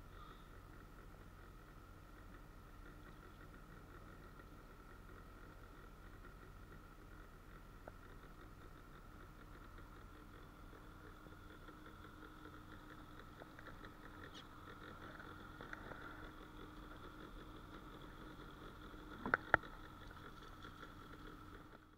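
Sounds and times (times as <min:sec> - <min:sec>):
outboard motor humming: 0:00.0 - 0:21.9.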